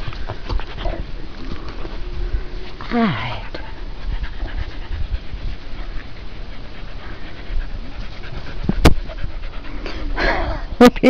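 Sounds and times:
dog panting: 0:03.4 - 0:10.3.

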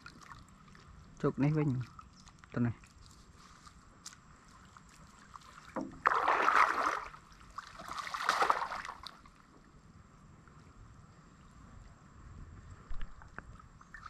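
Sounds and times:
basket splashing through water: 0:05.3 - 0:09.2.

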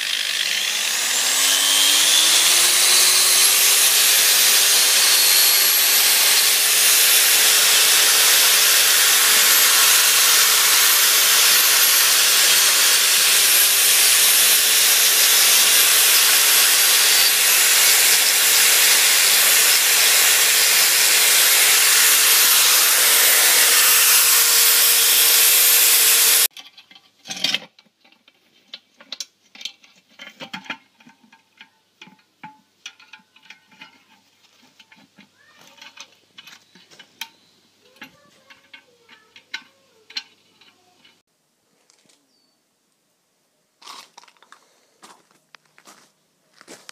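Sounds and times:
angle grinder brushing rust off metal: 0:00.0 - 0:26.5, 0:32.9 - 0:37.3, 0:37.9 - 0:41.2.

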